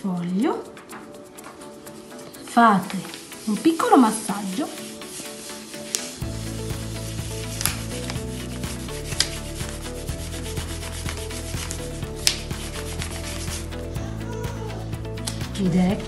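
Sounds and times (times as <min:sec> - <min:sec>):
hand rubbing paper: 0:00.7 - 0:13.9.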